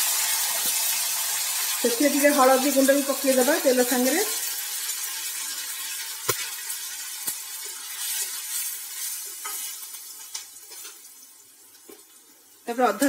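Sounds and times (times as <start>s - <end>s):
hot oil sizzling: 0.0s - 13.0s
spatula stirring in pan: 7.2s - 11.1s.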